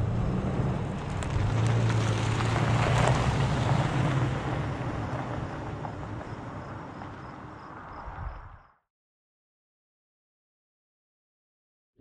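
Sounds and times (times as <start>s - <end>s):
truck engine hum: 0.0s - 7.6s
tyres on gravel: 0.4s - 7.6s.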